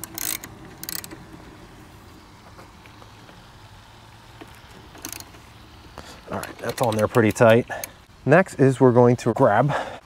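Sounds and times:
ratchet wrench clicking: 0.0s - 1.2s, 4.3s - 5.5s, 6.2s - 8.0s.

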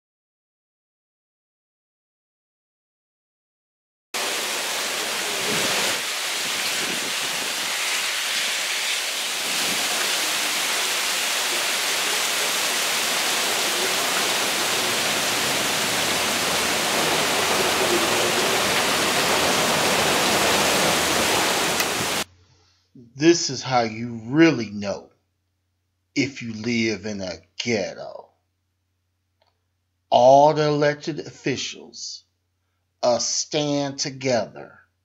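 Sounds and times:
heavy rain pouring: 4.2s - 22.3s
water gushing from downspout: 4.2s - 22.3s.

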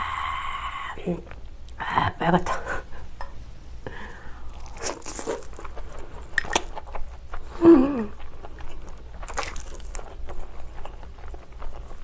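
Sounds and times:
person humming: 7.6s - 8.2s.

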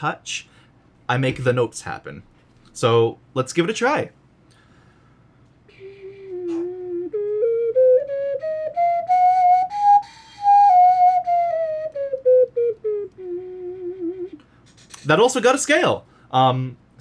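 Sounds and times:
ocarina playing a scale: 5.7s - 14.4s.

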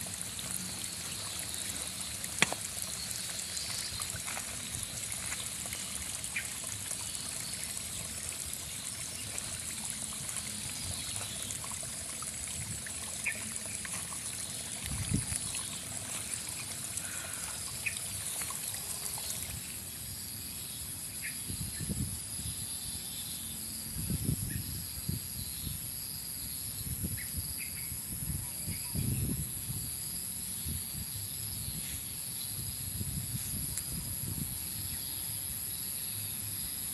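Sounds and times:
steady high hiss: 0.0s - 13.4s.

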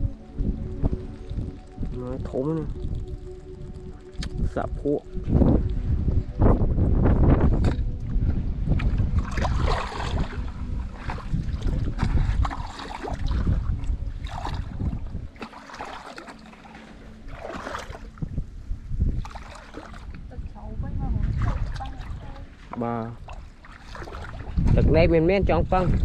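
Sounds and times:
wind buffeting microphone: 0.0s - 26.0s
splashes of wading in water: 7.6s - 26.0s.

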